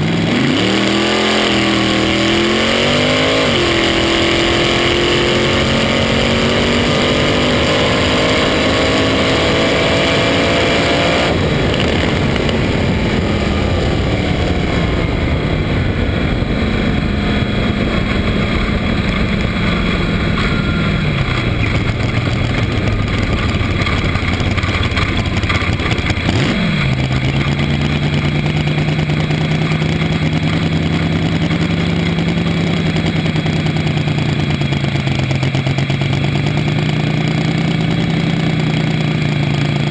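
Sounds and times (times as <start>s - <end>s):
dragster engine revving: 0.0s - 39.9s
wind rush on microphone: 3.3s - 28.6s
engine idling: 11.3s - 39.9s.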